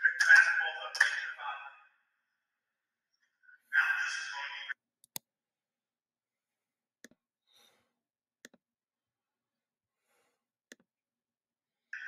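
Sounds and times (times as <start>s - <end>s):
computer mouse clicks: 5.0s - 5.2s.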